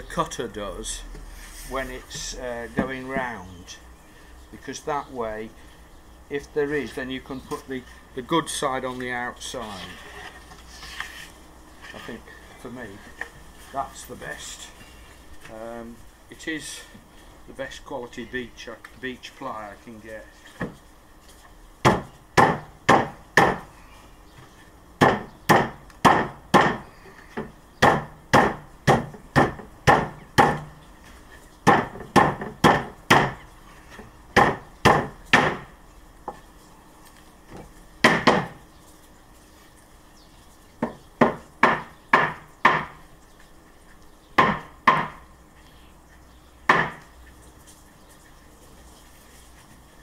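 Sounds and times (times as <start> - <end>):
rubber mallet knocking wood: 27.4 - 30.7, 38.0 - 38.6, 40.8 - 43.0, 44.4 - 45.2, 46.7 - 47.0.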